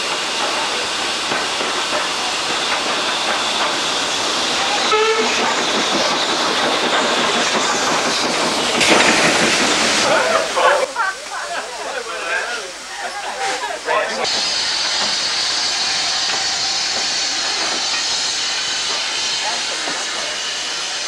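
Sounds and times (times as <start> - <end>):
train running noise and rail clatter: 0.0 - 11.4, 12.7 - 21.0
steam hiss: 0.0 - 21.0
steam train passing: 0.0 - 21.0
train whistle toot: 4.8 - 5.4.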